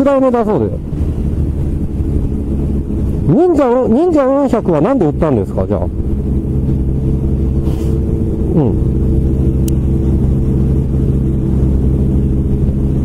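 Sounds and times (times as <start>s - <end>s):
motorcycle engine humming: 0.0s - 13.0s
road and wind noise: 0.0s - 13.0s
falling pitch sweep: 0.6s - 13.0s.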